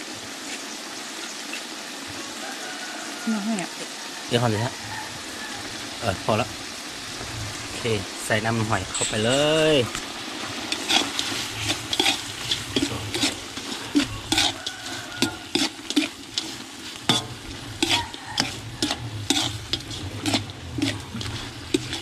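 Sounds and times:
sizzle of frying meat: 0.0s - 22.0s
metal ladle scraping a wok: 8.9s - 22.0s.

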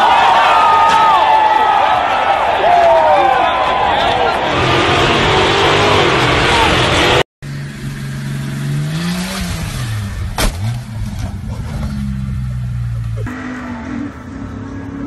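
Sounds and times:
crowd noise: 0.0s - 7.2s
engine revving under load: 4.4s - 15.0s
sharp crack: 10.2s - 11.9s.

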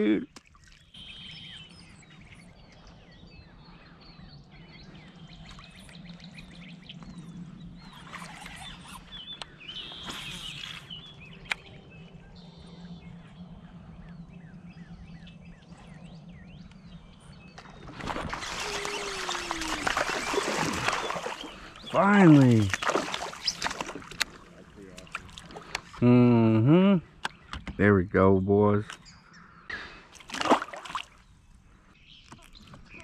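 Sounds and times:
birds chirping and calling: 1.0s - 17.7s, 18.5s - 30.0s
fish splashing at surface: 17.8s - 25.6s, 30.2s - 31.2s.

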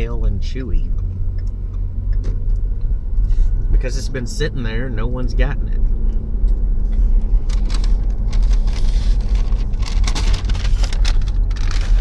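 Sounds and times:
car road noise rumble: 0.0s - 12.0s
rustling and crackling: 6.9s - 12.0s.

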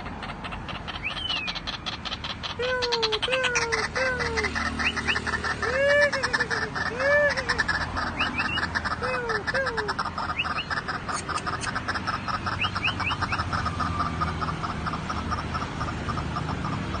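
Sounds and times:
bird croaking call: 0.0s - 17.0s.

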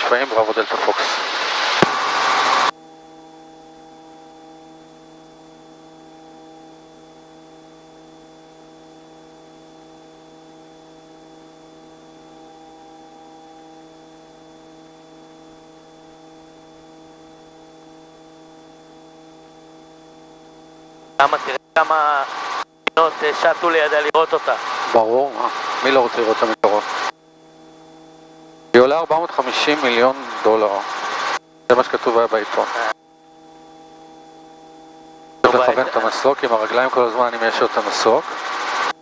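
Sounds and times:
burst of radio noise: 0.0s - 2.7s, 21.2s - 27.1s, 28.8s - 33.0s, 35.4s - 38.9s
helicopter hum through headset: 1.8s - 39.0s.

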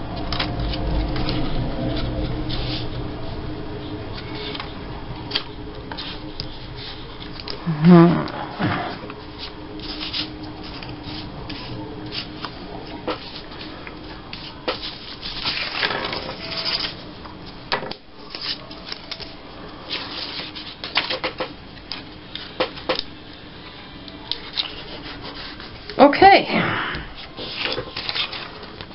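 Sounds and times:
paper rustling on a tabletop: 0.2s - 3.0s, 5.3s - 7.6s, 8.6s - 17.0s, 18.2s - 21.2s, 24.4s - 25.9s, 27.2s - 28.9s.

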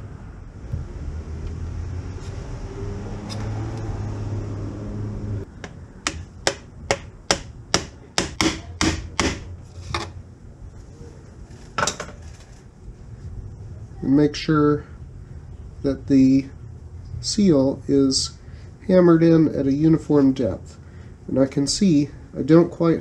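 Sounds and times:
low steady hum: 0.0s - 23.0s
hammer tapping plastic pipe: 5.6s - 9.4s.

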